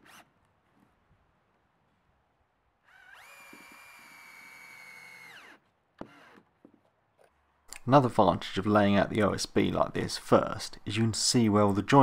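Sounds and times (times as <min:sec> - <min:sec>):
cordless drill motor whine: 0:02.8 - 0:06.5.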